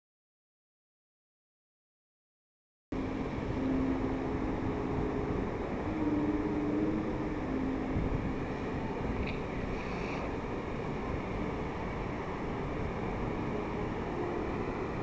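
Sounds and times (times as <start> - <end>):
faint low held tone: 3.0 - 9.4
wind on microphone: 3.0 - 15.0.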